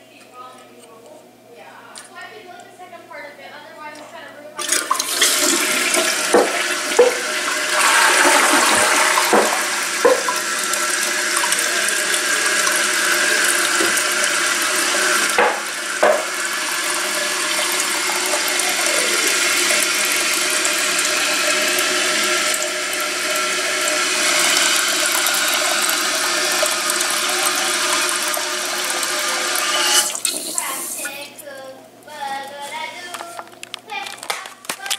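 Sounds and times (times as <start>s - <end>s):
tank refilling with running water: 4.6s - 31.5s
toilet flushing: 4.6s - 31.5s
pipe knocks: 6.3s - 7.2s, 9.2s - 10.4s, 15.3s - 16.4s.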